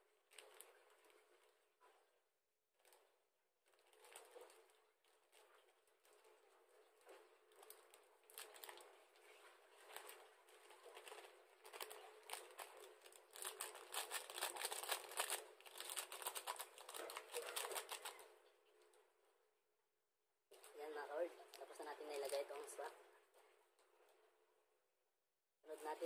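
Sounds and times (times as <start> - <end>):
plastic sachet crinkling: 3.7 - 5.7, 7.5 - 18.3, 21.4 - 22.9.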